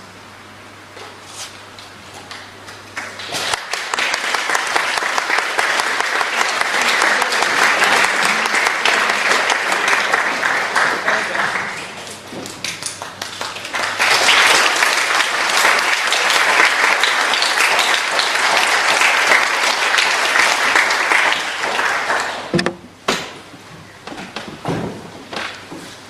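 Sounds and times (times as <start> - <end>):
audience applauding: 2.3 - 22.6
knocks: 22.5 - 23.4.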